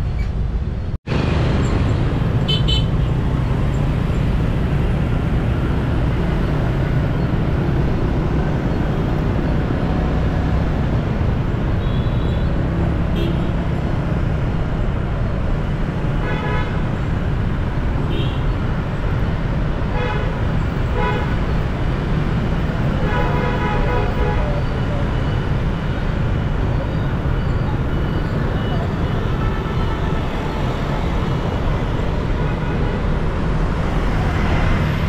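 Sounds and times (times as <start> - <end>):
traffic rumble and road noise: 0.0 - 35.0
vehicle horn toots: 2.5 - 2.9, 13.1 - 13.6.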